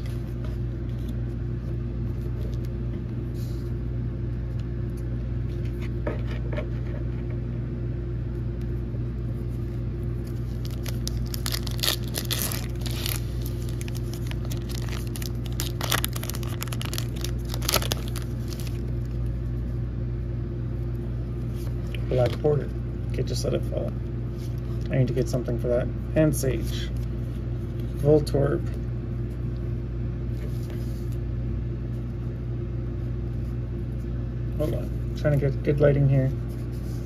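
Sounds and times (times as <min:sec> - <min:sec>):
steady low hum: 0:00.0 - 0:37.0
foil wrapper crinkling and tearing: 0:10.2 - 0:19.3.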